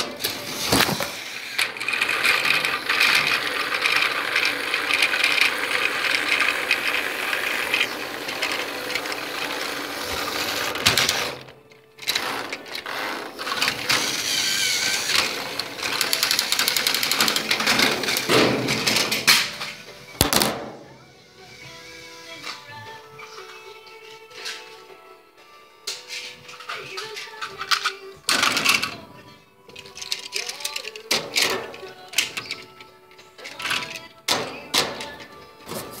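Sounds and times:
toy train motor whirring: 0.0s - 18.3s, 29.7s - 32.7s.

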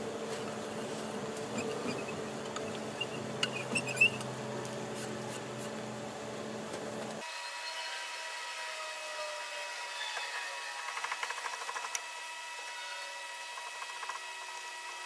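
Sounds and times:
power drill boring wood: 7.2s - 15.0s.

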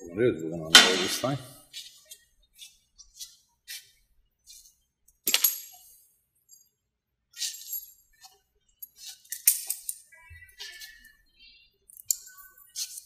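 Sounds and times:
metal cable clips clinking: 8.8s - 10.0s.

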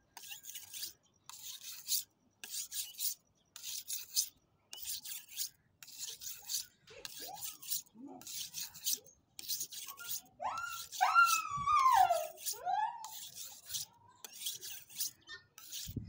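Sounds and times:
knife scraping on sharpening stone: 0.2s - 16.0s.

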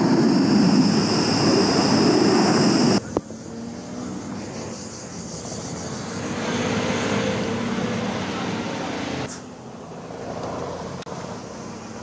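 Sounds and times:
high-pitched whine: 0.0s - 9.4s
helicopter rotor and turbine: 0.0s - 12.0s.

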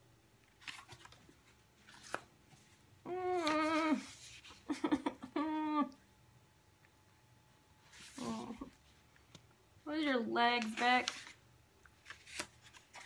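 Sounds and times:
paper rustling: 0.4s - 4.7s, 7.8s - 8.7s, 10.6s - 13.0s
woman whining: 3.0s - 4.2s, 5.3s - 6.0s, 8.2s - 8.8s
woman whimpering: 3.1s - 4.2s, 5.2s - 6.0s, 8.2s - 8.8s.

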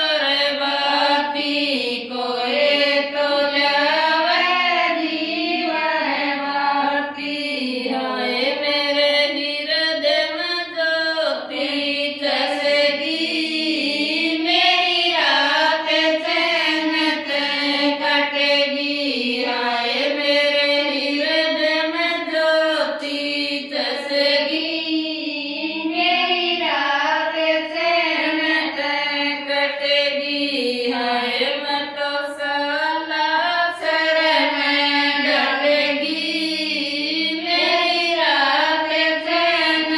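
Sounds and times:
women singing devotional song: 0.0s - 39.9s.

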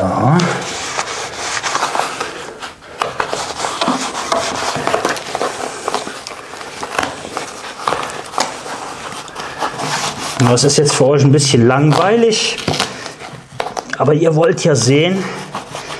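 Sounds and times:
plastic sheeting rustling: 0.2s - 15.9s.

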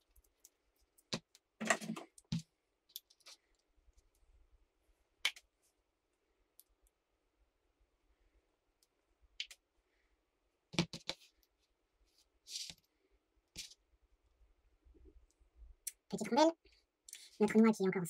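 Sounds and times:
small parts clicking and knocking: 0.0s - 4.2s.

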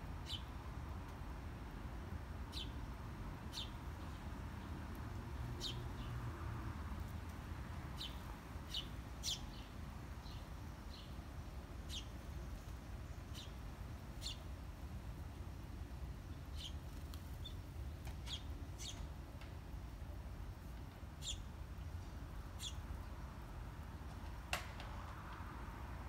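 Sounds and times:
small birds chirping: 0.2s - 0.6s, 2.5s - 6.4s, 7.0s - 15.2s, 16.2s - 19.4s, 20.9s - 23.2s.

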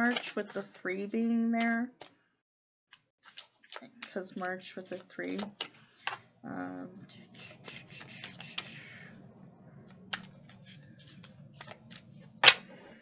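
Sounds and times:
cards being shuffled: 2.9s - 6.3s, 7.5s - 8.9s, 9.9s - 12.7s.

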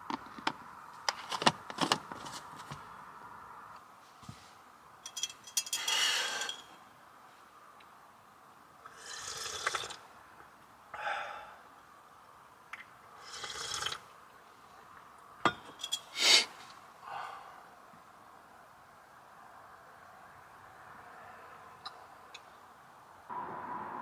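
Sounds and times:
sharp clicks and clinks: 5.0s - 6.7s.

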